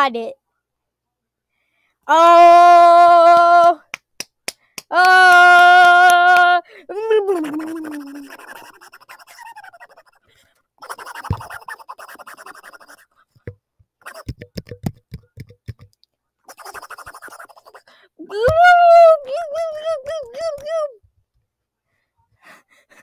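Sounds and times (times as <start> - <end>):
mouth clicks and pops: 7.3 - 10.2, 10.8 - 17.9
raspy mouth hissing: 7.3 - 10.2, 10.8 - 13.2, 14.0 - 14.3, 16.5 - 17.9.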